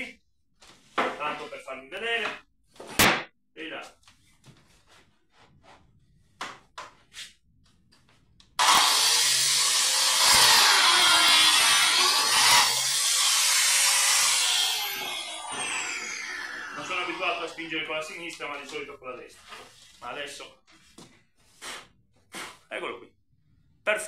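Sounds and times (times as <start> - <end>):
biscuit joiner motor running: 8.6 - 17.7
blade cutting into wooden board: 8.6 - 17.7.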